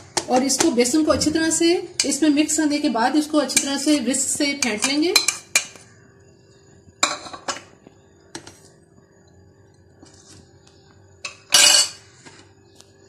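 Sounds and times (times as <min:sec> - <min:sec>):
spoon clinking on ceramic plate: 0:11.3 - 0:12.0.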